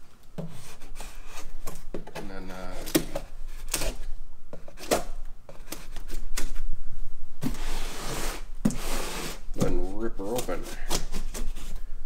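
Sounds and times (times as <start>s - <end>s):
cardboard box scraping open: 7.5s - 9.8s.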